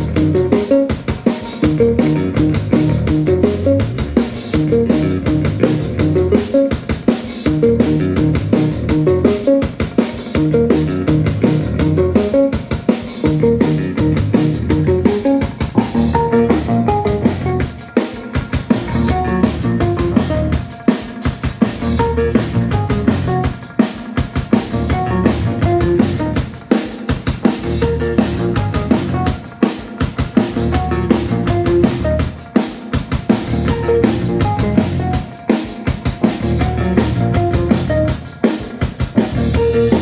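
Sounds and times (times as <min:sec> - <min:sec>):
drum kit beating fast rhythm: 0:00.0 - 0:40.0
live band playing: 0:00.0 - 0:40.0.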